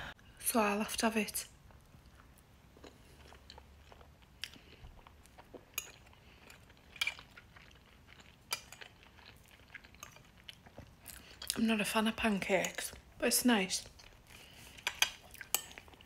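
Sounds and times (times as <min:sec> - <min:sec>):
quiet chewing: 0:01.6 - 0:11.6, 0:13.8 - 0:16.0.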